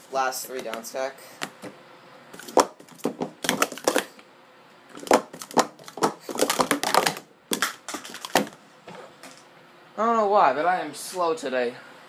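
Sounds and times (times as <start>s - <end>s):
plastic cups clacking: 2.4s - 4.2s, 4.9s - 8.6s.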